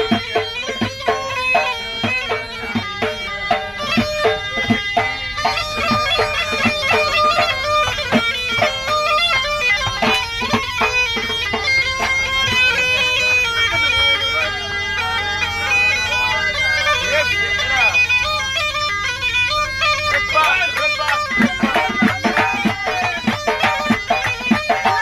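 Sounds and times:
hand drum beat: 0:00.0 - 0:13.9, 0:19.8 - 0:25.0
bagpipe melody: 0:00.0 - 0:25.0.

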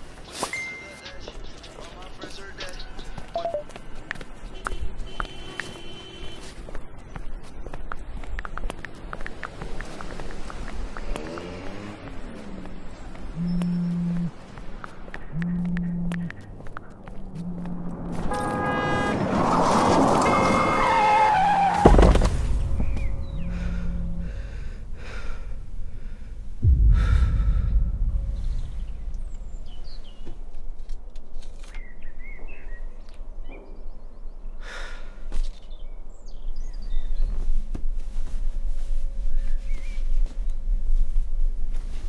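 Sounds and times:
street noise: 0:00.0 - 0:36.7
car horns honking: 0:18.1 - 0:19.6, 0:20.2 - 0:24.7
deep low boom: 0:21.9 - 0:30.7.

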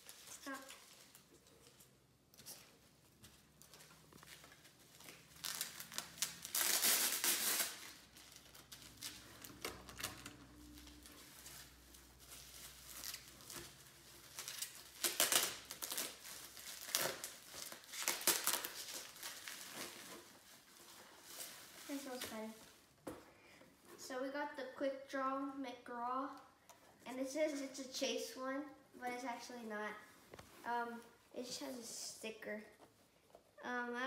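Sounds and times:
plastic packaging crinkling: 0:03.6 - 0:22.8.

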